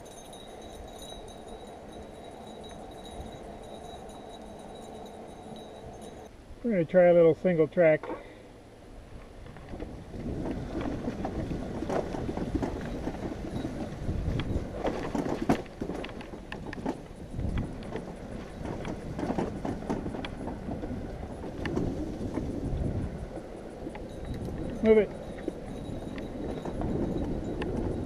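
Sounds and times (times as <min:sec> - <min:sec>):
bike and trailer rattling: 0:00.0 - 0:28.0
bicycle tyre rumble on dirt: 0:09.0 - 0:28.0
wind on microphone: 0:09.4 - 0:28.0.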